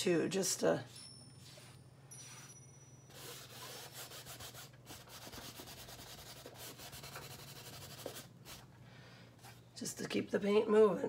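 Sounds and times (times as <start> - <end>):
paintbrush scrubbing canvas: 3.1 - 8.7.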